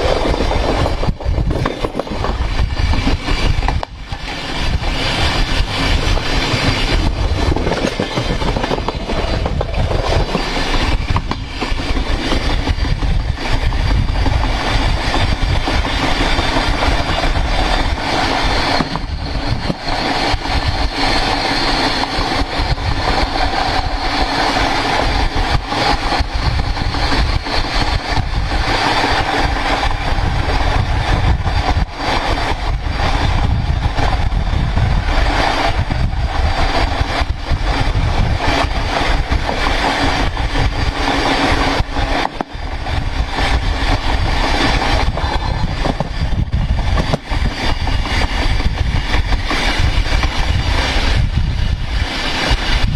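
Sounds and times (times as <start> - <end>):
train wheel rolling on rail: 0.0 - 52.9.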